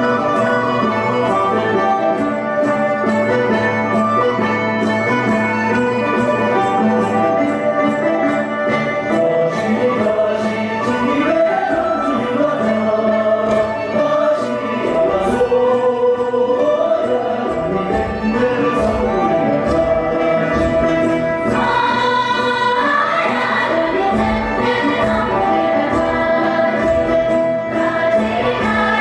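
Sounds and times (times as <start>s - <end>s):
voices singing a melody: 9.2s - 20.8s, 21.5s - 29.0s.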